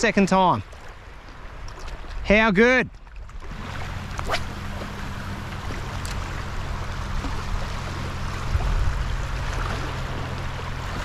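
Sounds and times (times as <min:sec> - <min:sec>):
water rushing and lapping on sand: 0:00.0 - 0:11.0
low hum: 0:03.0 - 0:11.0
low rumble: 0:03.2 - 0:11.0.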